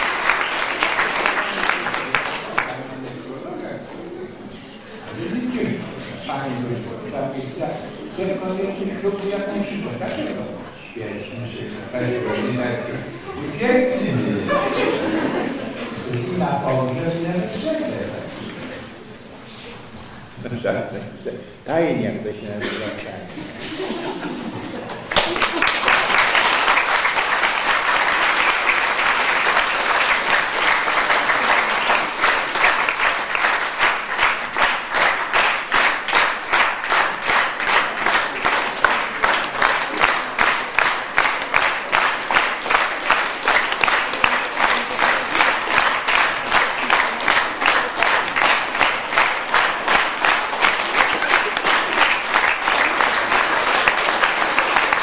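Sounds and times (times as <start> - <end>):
rhythmic clapping in unison: 0.0 - 2.8, 24.8 - 55.0
crowd applauding: 0.0 - 3.4, 11.4 - 18.9, 24.0 - 55.0.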